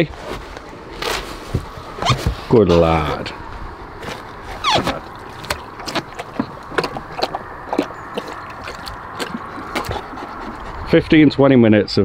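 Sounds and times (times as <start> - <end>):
dog lapping water from bowl: 4.6 - 10.9.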